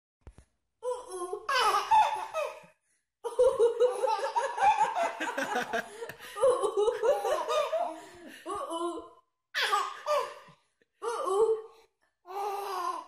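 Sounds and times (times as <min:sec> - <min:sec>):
baby laughing: 0:00.9 - 0:02.7, 0:03.3 - 0:09.0, 0:09.6 - 0:10.5.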